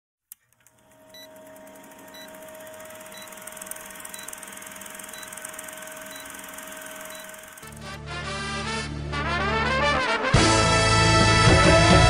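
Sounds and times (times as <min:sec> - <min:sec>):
film projector whirring clatter: 0:00.3 - 0:07.9
faint hum: 0:00.6 - 0:07.8
short high beeps: 0:03.1 - 0:07.8.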